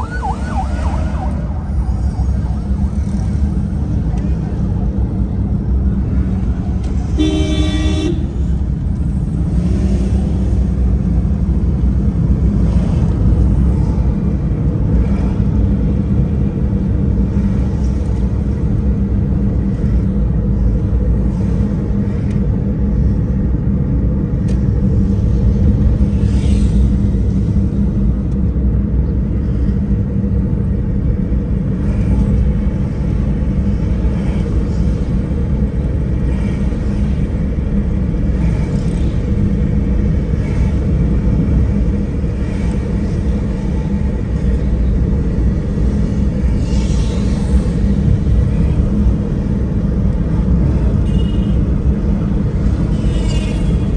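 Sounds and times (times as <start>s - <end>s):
vehicle driving low rumble: 0.0s - 53.9s
vehicle horn toot: 7.2s - 8.3s, 51.0s - 51.6s.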